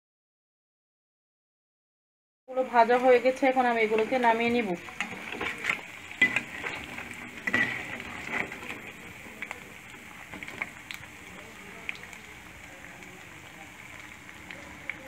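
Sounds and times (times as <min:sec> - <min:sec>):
food sizzling in oil: 0:02.5 - 0:15.0
metal spoon scraping pan: 0:03.9 - 0:08.9.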